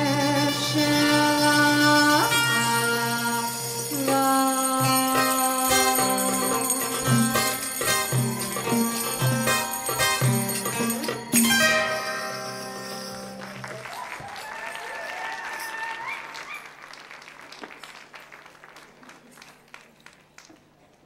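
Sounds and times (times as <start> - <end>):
audience applause: 13.3 - 21.0
audience cheering: 13.4 - 19.8.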